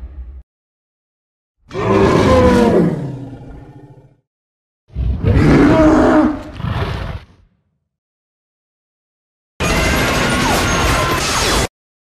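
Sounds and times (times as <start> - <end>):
monster roar: 1.7 - 4.2, 4.9 - 7.3.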